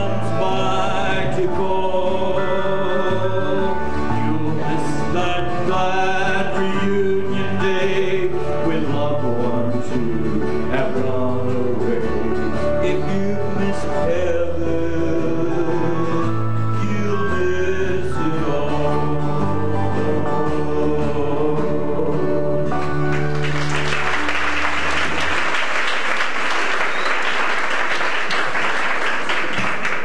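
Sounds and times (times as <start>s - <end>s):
person singing: 0.0s - 23.0s
country gospel band playing: 0.0s - 30.0s
audience applause: 22.8s - 30.0s.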